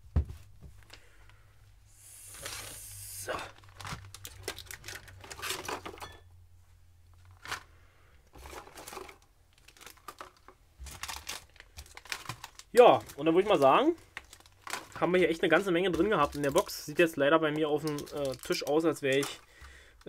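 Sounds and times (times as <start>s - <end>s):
plastic packaging crinkling: 2.3s - 6.1s, 8.3s - 20.0s.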